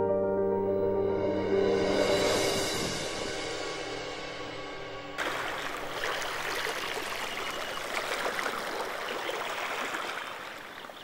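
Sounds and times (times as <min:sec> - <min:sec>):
stream water rushing: 0:05.2 - 0:11.0.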